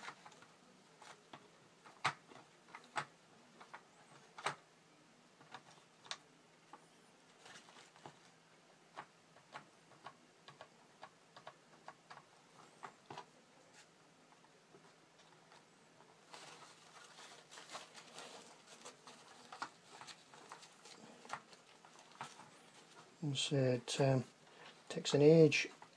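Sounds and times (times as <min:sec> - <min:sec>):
paper peeling clicks and crinkles: 0:00.0 - 0:04.6, 0:15.2 - 0:23.2.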